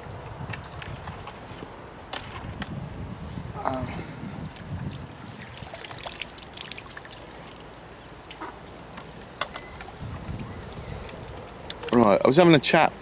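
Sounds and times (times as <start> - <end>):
water trickling and dripping: 4.4 - 12.2
small water splashes: 4.5 - 10.1.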